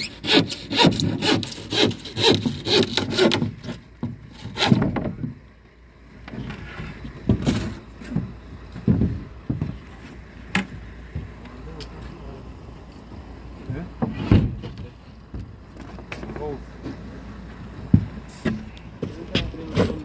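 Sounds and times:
handsaw cutting plywood: 0.0 - 4.9.

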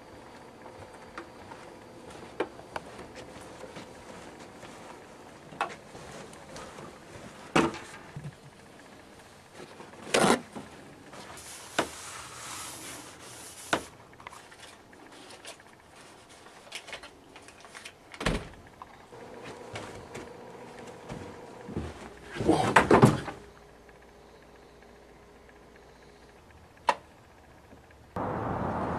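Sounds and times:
rustling: 1.4 - 17.9.

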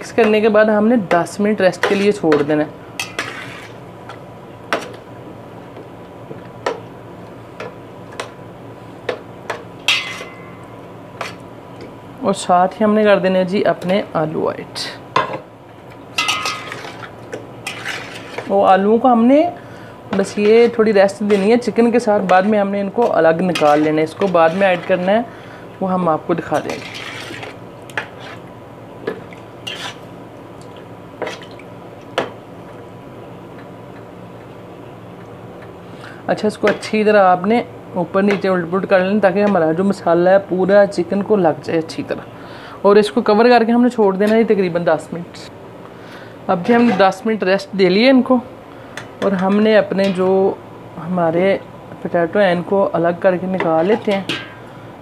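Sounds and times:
spoon stirring in metal pot: 1.1 - 3.8, 16.2 - 18.6, 20.1 - 25.3, 26.4 - 28.5, 29.1 - 30.1.

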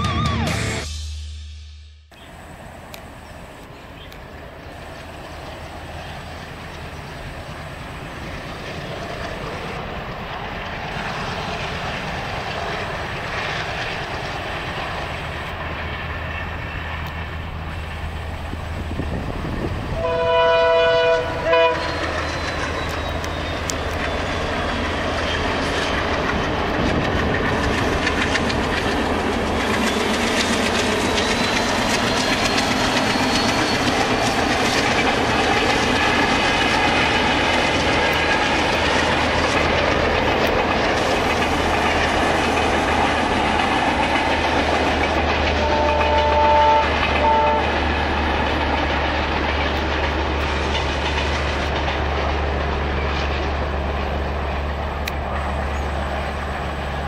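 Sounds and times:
diesel locomotive engine: 0.0 - 57.0
train horn: 19.9 - 22.1, 45.5 - 47.8
wheels clattering over rail joints: 21.3 - 57.0.

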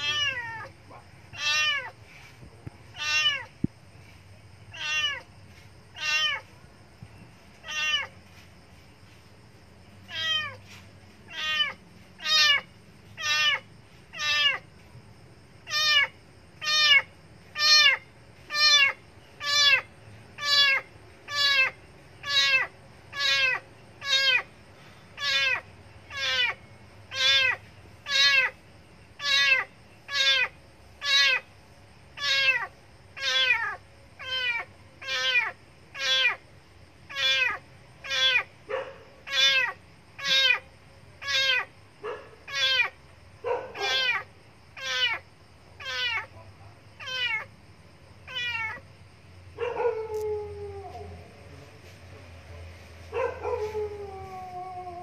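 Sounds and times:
kitten meowing loudly: 0.0 - 0.7, 1.3 - 2.0, 2.9 - 3.5, 4.7 - 5.2, 5.9 - 6.4, 7.6 - 8.1, 10.1 - 10.6, 11.3 - 14.6, 15.6 - 24.5, 25.2 - 28.6, 29.2 - 31.5, 32.2 - 36.4, 37.1 - 38.5, 39.3 - 40.6, 41.2 - 41.7, 42.5 - 42.9, 43.8 - 45.2, 45.8 - 46.3, 47.0 - 47.5, 48.3 - 48.8.

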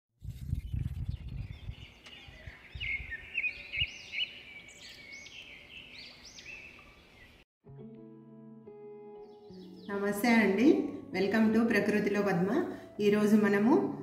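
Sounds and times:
birds chirping: 0.7 - 7.4, 9.2 - 11.6.

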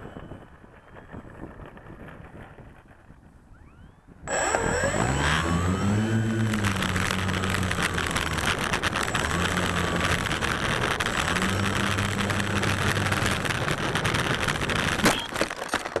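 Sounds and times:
model plane motor buzzing: 3.5 - 15.2
sharp crack: 6.2 - 16.0.

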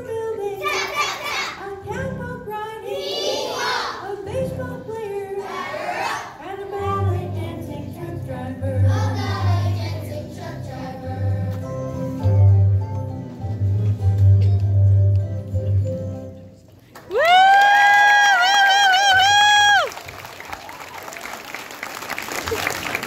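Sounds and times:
children singing: 0.5 - 1.7, 2.8 - 4.2, 5.2 - 11.5
backing music with bass: 6.8 - 16.4.

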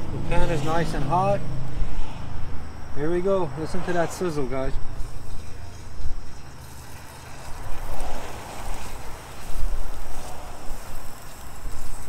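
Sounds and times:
wind rumble on microphone: 3.8 - 12.0.

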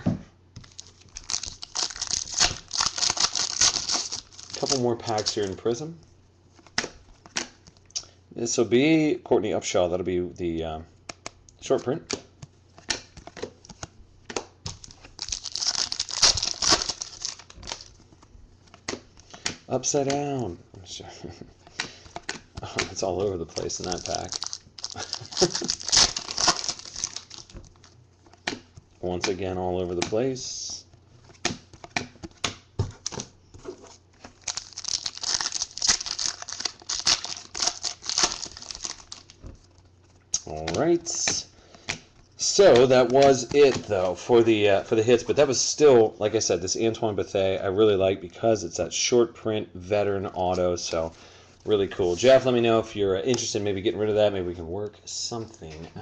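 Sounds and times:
foil wrapper crinkling: 0.6 - 5.6, 14.7 - 18.1, 22.0 - 28.4, 34.0 - 43.8.

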